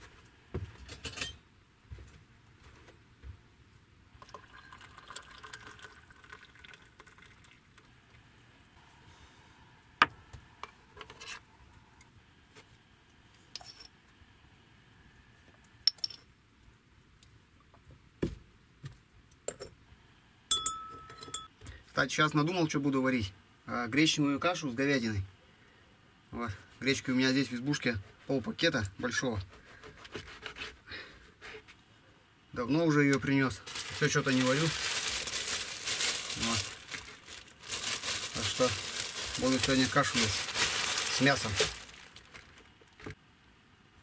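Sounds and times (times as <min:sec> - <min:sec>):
tea pouring into mug: 0:04.2 - 0:07.8
spoon clinking against mug: 0:20.5 - 0:21.5.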